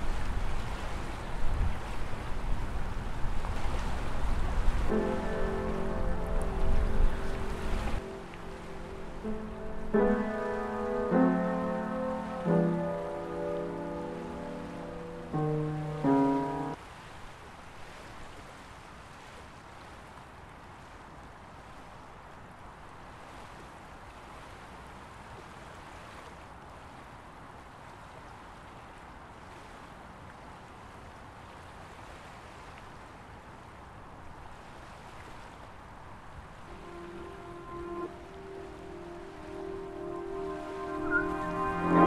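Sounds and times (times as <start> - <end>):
steady rushing noise: 0.0 - 16.8, 36.4 - 42.0
held music notes: 4.9 - 16.8, 36.6 - 42.0.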